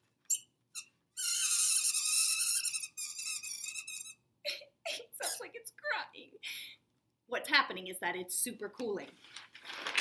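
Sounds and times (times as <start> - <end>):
metal fork screeching on dry ice: 0.3 - 4.2.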